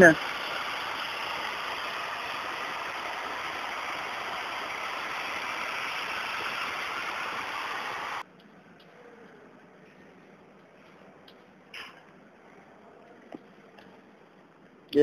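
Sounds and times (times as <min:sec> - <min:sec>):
high-pressure water jet spraying: 0:00.0 - 0:08.2.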